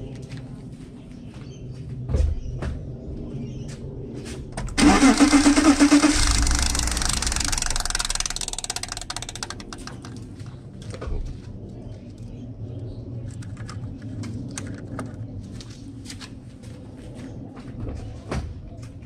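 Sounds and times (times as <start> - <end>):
engine running: 4.6 - 11.6
engine starter cranking: 4.7 - 10.1.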